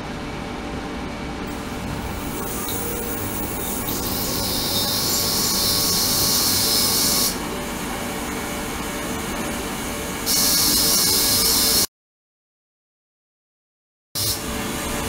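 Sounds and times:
steady background noise: 0:00.0 - 0:11.9
ultrasonic cleaner high-pitched hiss: 0:01.6 - 0:07.4, 0:10.3 - 0:11.9.

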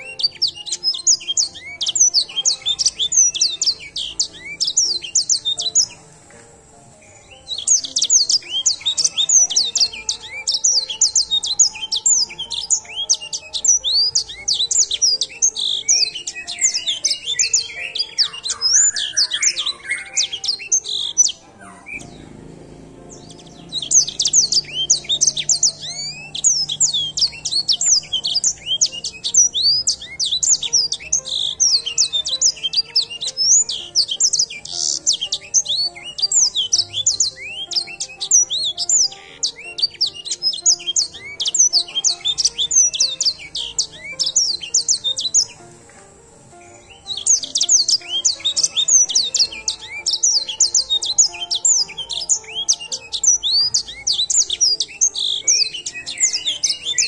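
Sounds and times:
songbird chirps and trills: 0:00.0 - 0:57.0.

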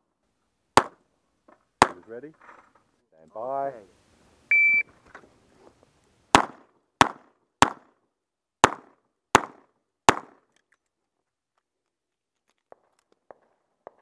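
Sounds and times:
revolver gunshots: 0:06.3 - 0:07.9.

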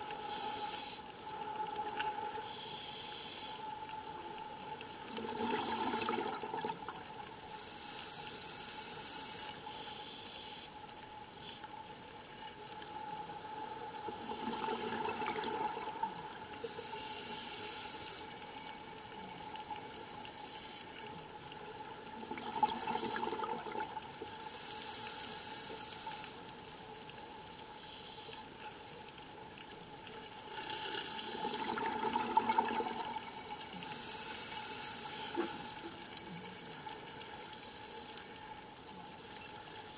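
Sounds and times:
regulator inhale hiss: 0:00.0 - 0:06.2, 0:07.3 - 0:11.8, 0:13.0 - 0:15.5, 0:16.1 - 0:21.2, 0:24.3 - 0:28.6, 0:30.5 - 0:32.1, 0:32.8 - 0:38.7
bubbling exhale underwater: 0:05.2 - 0:06.9, 0:22.2 - 0:23.9, 0:30.9 - 0:33.4.

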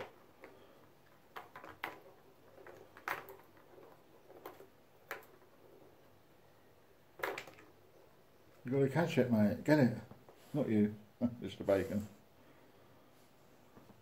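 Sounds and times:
plastic balls clicking in tracks: 0:00.0 - 0:06.1, 0:07.1 - 0:08.0.

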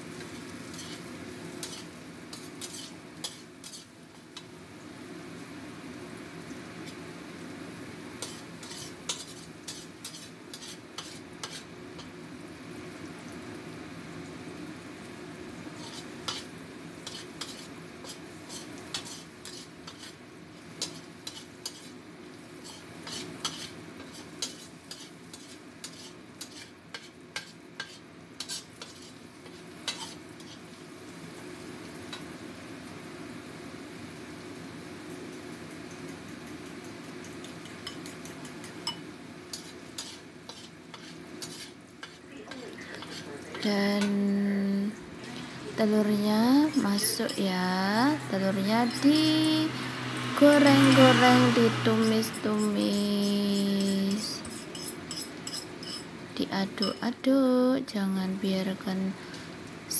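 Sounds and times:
vegetables sizzling in oil: 0:00.0 - 0:59.9
metal spatula scraping a wok: 0:00.6 - 0:04.0, 0:08.2 - 0:12.1, 0:15.7 - 0:20.2, 0:20.8 - 0:22.0, 0:22.6 - 0:30.7, 0:37.8 - 0:42.2, 0:42.9 - 0:43.4, 0:48.3 - 0:56.1.

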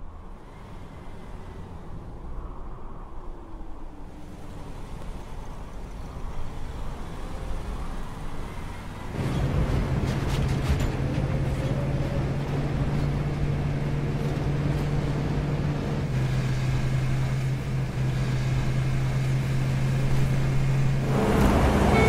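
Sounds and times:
road noise: 0:00.0 - 0:22.0
vehicle engine drone: 0:00.0 - 0:22.0.

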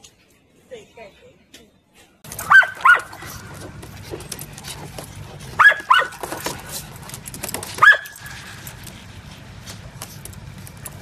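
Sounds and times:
small dog yipping: 0:02.4 - 0:03.4, 0:05.6 - 0:06.2, 0:07.8 - 0:08.2.

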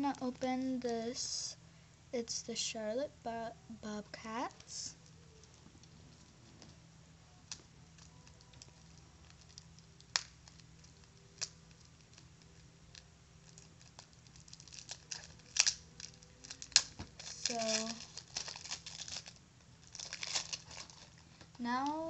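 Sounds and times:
cellophane crinkling: 0:07.4 - 0:22.0.

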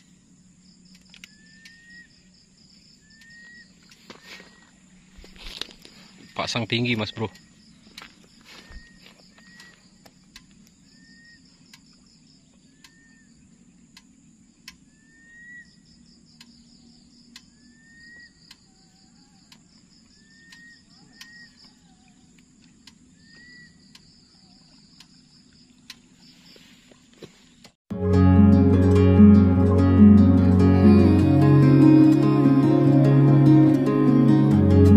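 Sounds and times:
insect chorus trilling: 0:00.0 - 0:26.6
sharp ticks: 0:09.5 - 0:10.7, 0:13.9 - 0:14.8, 0:16.2 - 0:16.6, 0:17.2 - 0:17.5
low steady hum: 0:27.9 - 0:34.9.

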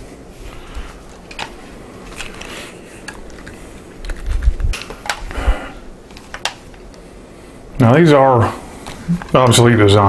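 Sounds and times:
rifle handling clicks and knocks: 0:01.1 - 0:05.3, 0:06.1 - 0:06.8.

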